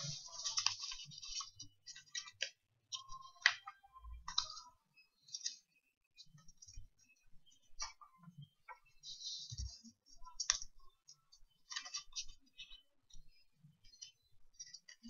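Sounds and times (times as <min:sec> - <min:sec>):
paper crinkling and rustling: 0:00.0 - 0:03.6.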